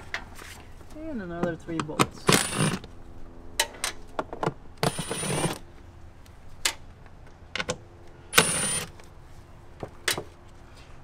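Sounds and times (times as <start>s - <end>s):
electric ratchet whining: 2.3s - 2.9s, 4.8s - 5.6s, 8.3s - 9.0s.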